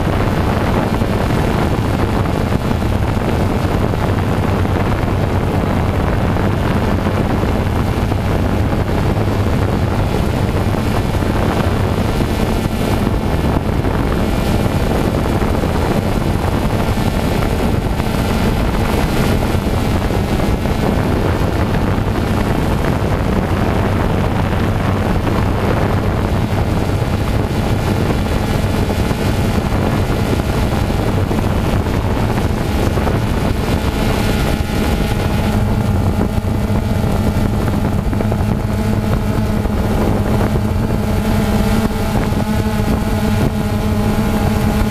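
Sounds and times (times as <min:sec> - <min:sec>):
drone motors humming: 0:00.0 - 0:44.9.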